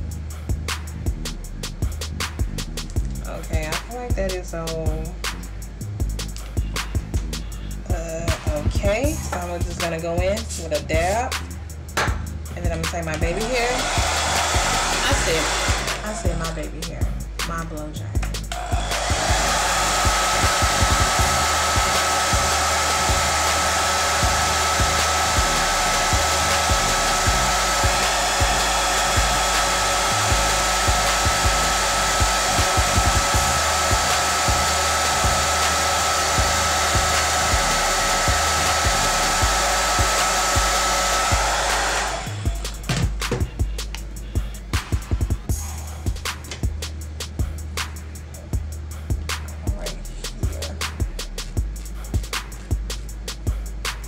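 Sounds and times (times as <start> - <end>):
blow dryer running: 12.0 - 16.6, 18.4 - 44.4.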